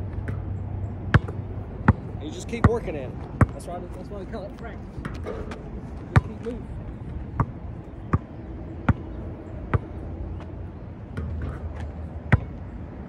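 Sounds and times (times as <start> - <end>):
ball hitting backboard and rim: 1.1 - 2.0, 5.0 - 6.4, 11.2 - 12.6
basketball bouncing: 1.1 - 2.8, 3.4 - 3.6, 5.0 - 6.5, 7.4 - 10.0, 11.1 - 12.6.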